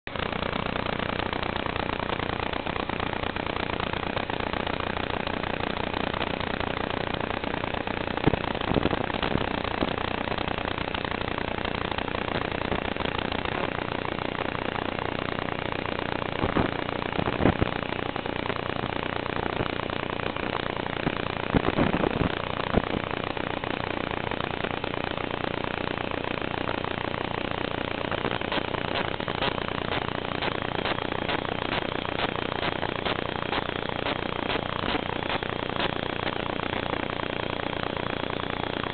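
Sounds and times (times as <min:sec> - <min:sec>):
static hiss: 0:27.6 - 0:38.9
sharp crackles: 0:28.1 - 0:38.9.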